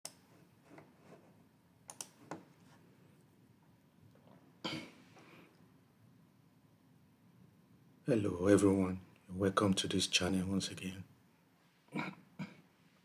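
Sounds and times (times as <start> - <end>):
low room hiss: 0.0 - 13.0
computer mouse clicks: 1.9 - 2.5
person coughing: 4.6 - 5.0, 11.9 - 12.7.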